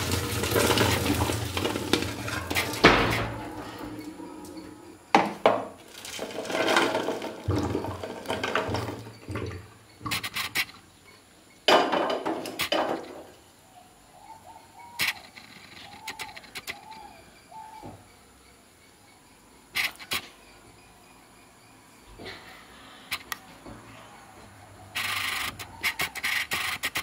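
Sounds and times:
pots and colander clattering: 0:00.0 - 0:10.3, 0:11.7 - 0:13.3.

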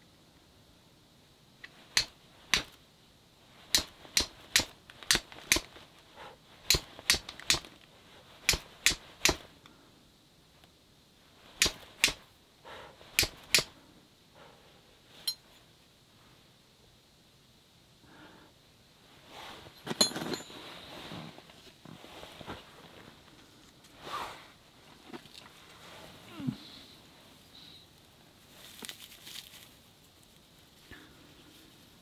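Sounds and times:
fire steel striking flint: 0:01.6 - 0:02.8, 0:03.6 - 0:05.9, 0:06.6 - 0:07.8, 0:08.4 - 0:09.5, 0:11.5 - 0:12.3, 0:13.1 - 0:13.8, 0:19.8 - 0:20.6.

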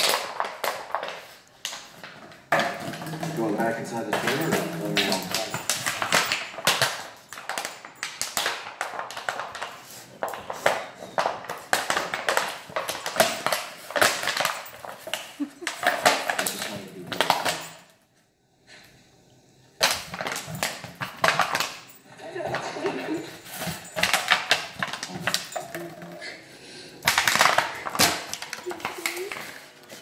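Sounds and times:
dog chewing plastic bottle: 0:00.0 - 0:17.6, 0:26.9 - 0:30.0.

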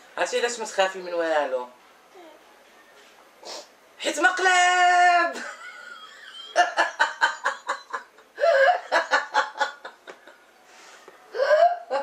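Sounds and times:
woman laughing: 0:05.4 - 0:10.4.

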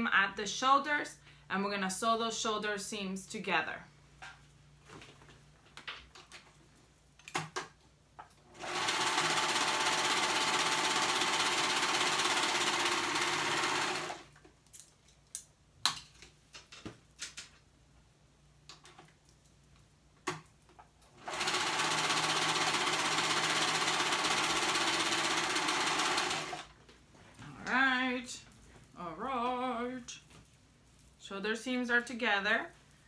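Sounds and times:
overlock machine stitching: 0:08.5 - 0:14.3, 0:21.2 - 0:26.7.

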